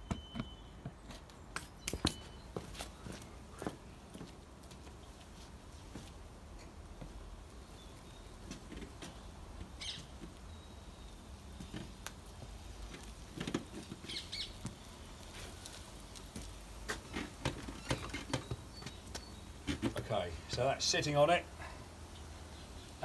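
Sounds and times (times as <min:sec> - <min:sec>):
footsteps on concrete: 0:00.0 - 0:06.3, 0:15.7 - 0:17.5.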